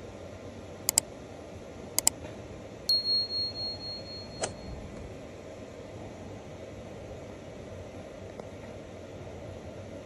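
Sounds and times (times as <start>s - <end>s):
steady low hiss: 0.0s - 10.0s
mouse clicks: 2.0s - 2.2s
high bell ding: 2.9s - 4.8s.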